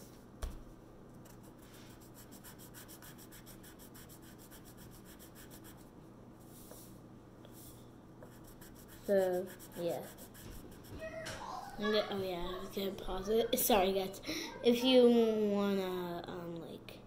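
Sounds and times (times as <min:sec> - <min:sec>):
pencil scribbling on paper: 0:01.9 - 0:05.8, 0:08.3 - 0:10.9.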